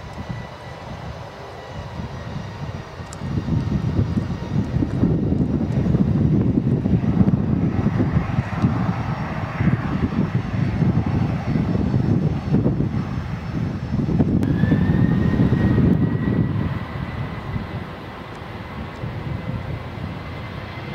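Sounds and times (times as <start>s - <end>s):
high engine whine: 0.0s - 20.9s
jet engines rumbling: 0.0s - 20.9s.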